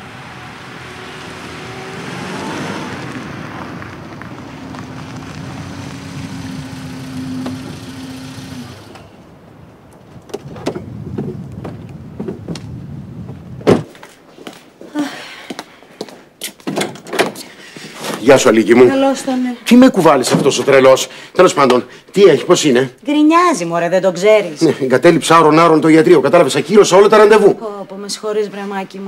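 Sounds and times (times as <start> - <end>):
car engine and road noise: 0.0 - 14.8
car door shutting: 13.6 - 13.9.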